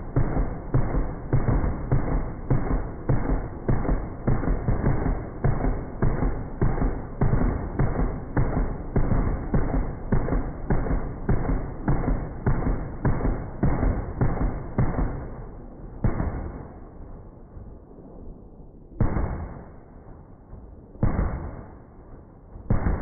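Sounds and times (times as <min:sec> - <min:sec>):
heavy gunshots: 0:00.0 - 0:15.4, 0:16.0 - 0:16.8, 0:19.0 - 0:19.9, 0:21.0 - 0:21.9, 0:22.6 - 0:23.0.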